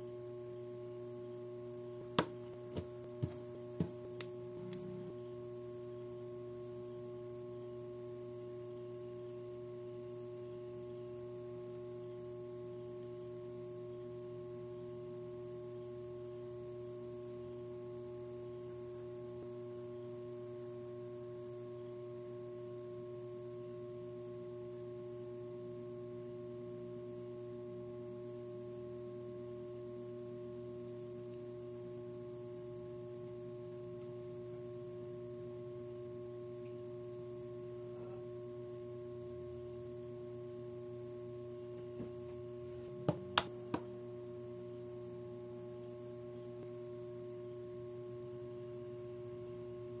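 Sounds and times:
steady hum of fixed tones: 0.0s - 13.3s
faint hum: 0.0s - 50.0s.

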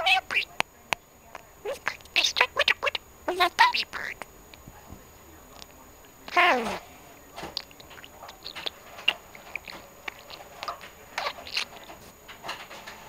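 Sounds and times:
budgerigar chattering: 0.0s - 0.6s, 1.4s - 4.7s, 5.6s - 12.1s.

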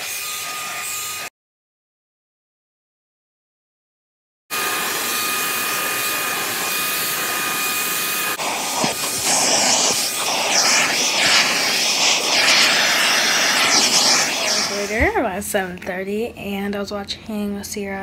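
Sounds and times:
vacuum cleaner running: 0.0s - 1.3s, 4.5s - 15.4s.

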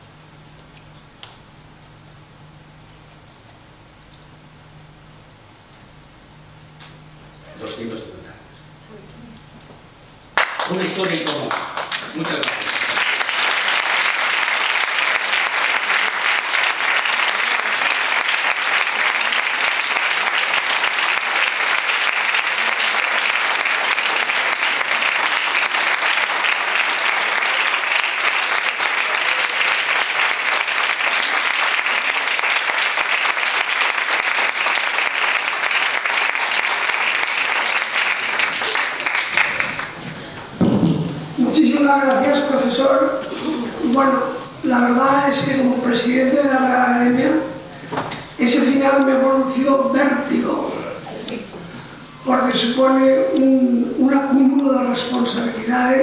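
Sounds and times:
audience applauding: 10.4s - 40.0s.

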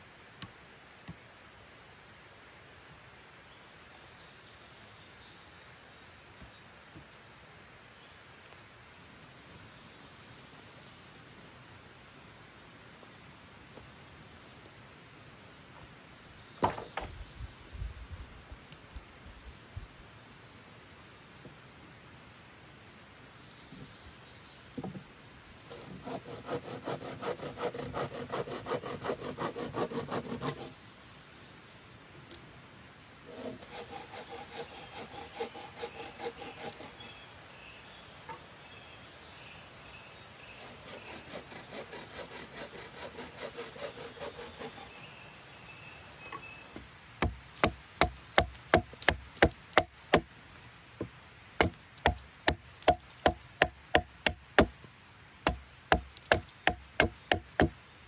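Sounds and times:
bow saw cutting wood: 25.7s - 30.7s, 33.2s - 37.2s, 40.6s - 45.1s, 51.6s - 54.7s, 55.5s - 57.7s
hatchet chopping log: 47.2s - 50.3s, 51.0s - 54.8s, 55.4s - 57.8s.

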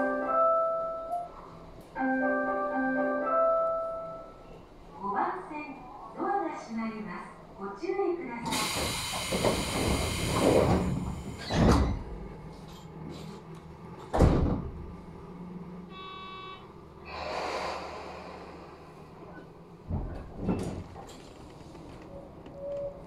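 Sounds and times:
air hiss of train doors: 8.4s - 11.5s, 17.0s - 19.2s
sliding doors thudding: 8.5s - 12.2s, 14.0s - 14.9s.

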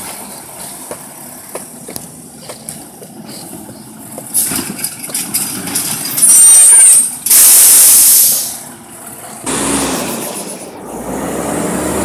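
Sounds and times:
diesel engine running: 0.0s - 12.0s
air brakes hissing: 6.2s - 8.7s.

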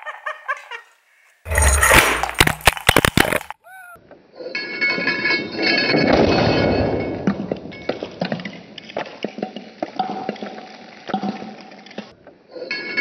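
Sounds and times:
aerosol can bursting with crash: 1.5s - 3.6s.

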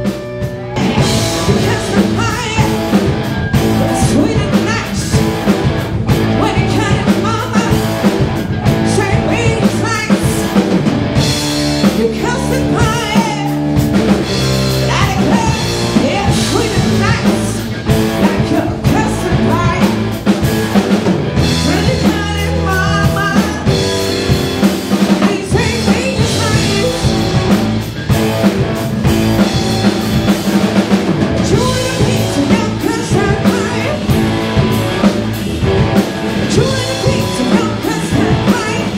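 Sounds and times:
drum kit beat: 0.0s - 38.9s
electric guitars: 0.0s - 38.9s
woman singing: 0.8s - 3.0s, 3.6s - 5.4s, 6.3s - 7.9s, 8.8s - 10.6s, 11.9s - 13.6s, 14.8s - 20.1s, 21.6s - 23.8s, 25.2s - 27.5s, 31.4s - 34.2s, 36.4s - 38.9s.

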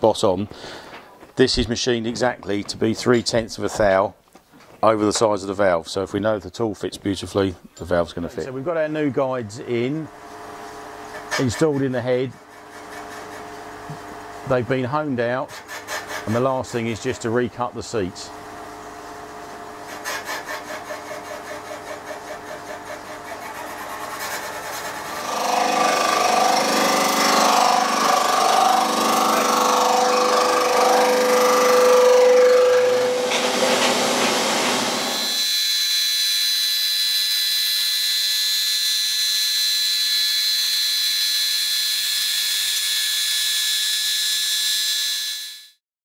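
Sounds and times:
valve-seat cutter scraping metal: 10.8s - 14.0s, 15.4s - 16.5s, 19.7s - 45.7s
milling machine whining: 18.7s - 45.7s.

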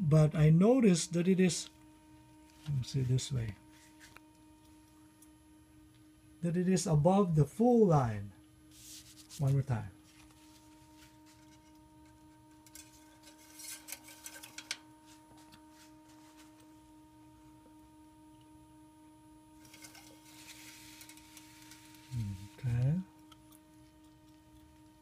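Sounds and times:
faint steady hum: 0.0s - 25.0s
paper towel rustling: 8.7s - 11.5s.

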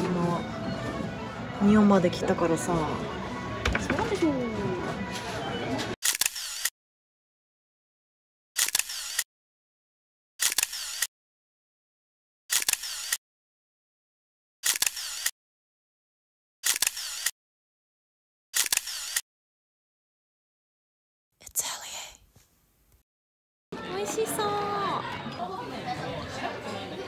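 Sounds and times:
camera shutter click: 6.0s - 6.7s, 8.6s - 9.2s, 10.4s - 11.1s, 12.5s - 13.2s, 14.6s - 15.3s, 16.6s - 17.3s, 18.6s - 19.2s.

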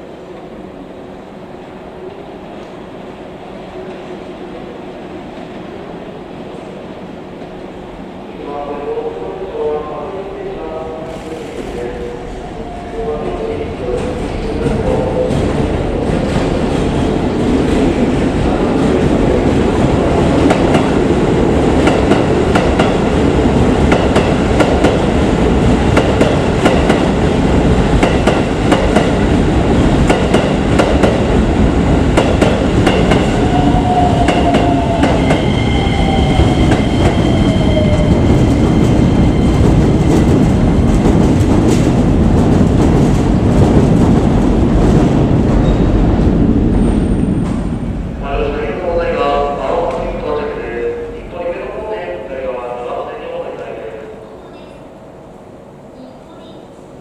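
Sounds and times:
electric train rumble: 0.0s - 54.3s
train falling whine: 21.8s - 43.8s.

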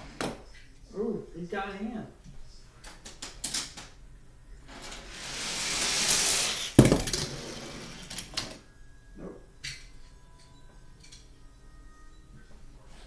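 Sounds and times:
toy car rattling on floor: 4.7s - 8.4s
toy car rolling down track: 4.7s - 8.6s.

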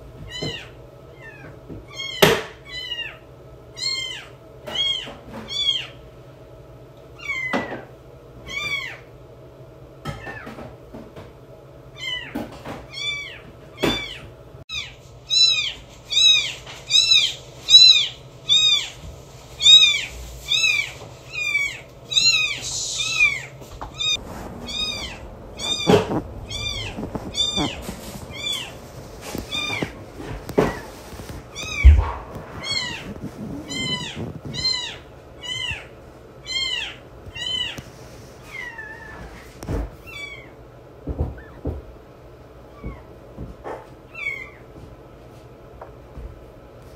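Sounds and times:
kitten mewing: 19.6s - 30.9s, 31.5s - 35.9s.

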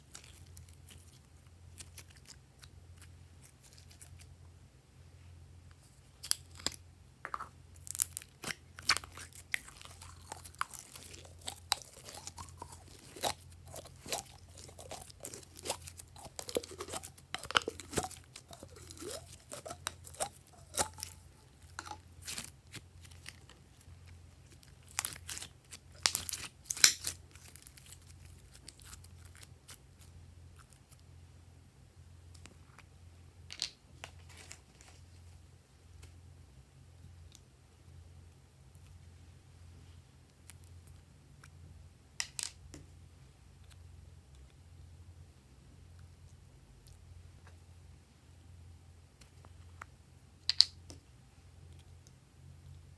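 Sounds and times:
slime squelching and crackling: 0.0s - 4.3s, 7.8s - 31.0s.

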